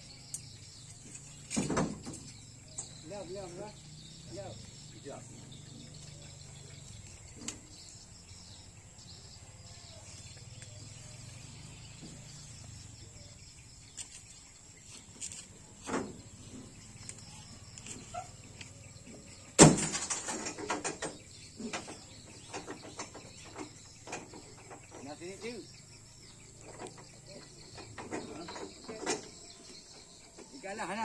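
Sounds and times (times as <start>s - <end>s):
high insect drone: 0.0s - 31.0s
crackling rustle: 13.7s - 19.0s.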